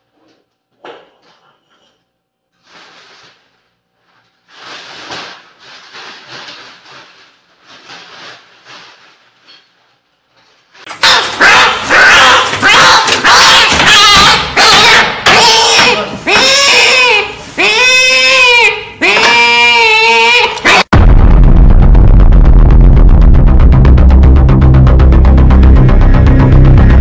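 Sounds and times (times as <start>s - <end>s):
plastic garbage bag rustling: 2.5s - 12.8s.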